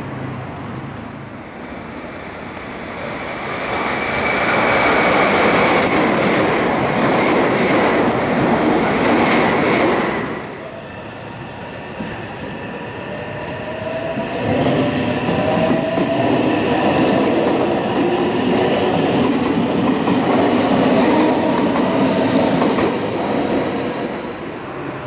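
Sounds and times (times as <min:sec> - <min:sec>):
train whine: 0:00.7 - 0:25.0
train wheels rumbling on rails: 0:02.2 - 0:25.0.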